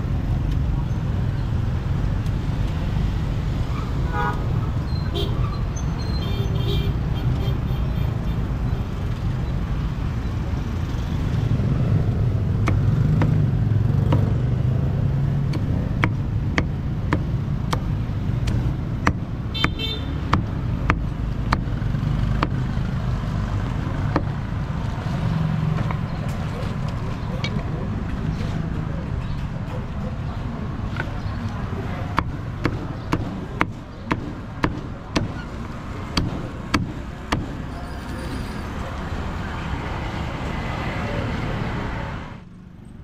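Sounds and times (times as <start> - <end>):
street traffic rumble: 0.0 - 43.0
sharp knocks: 22.3 - 22.6, 32.1 - 35.5, 36.1 - 37.7.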